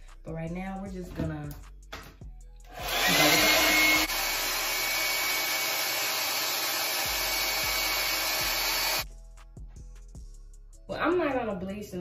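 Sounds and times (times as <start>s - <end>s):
hair dryer blowing air: 2.7s - 9.0s.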